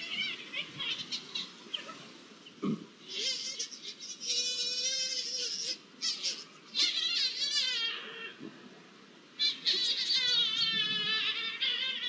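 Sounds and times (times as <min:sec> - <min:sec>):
lynx yowling: 0:03.1 - 0:08.4, 0:09.4 - 0:12.0.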